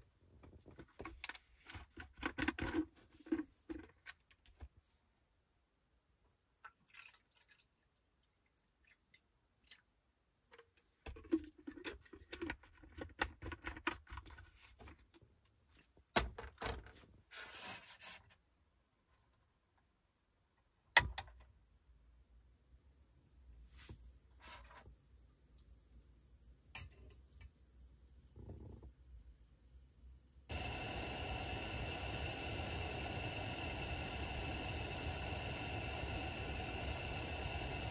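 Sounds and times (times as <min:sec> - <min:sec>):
water poured from plastic bottle: 0:06.6 - 0:07.7
gas burner hissing: 0:30.5 - 0:37.9
stove igniter click: 0:30.5 - 0:37.9.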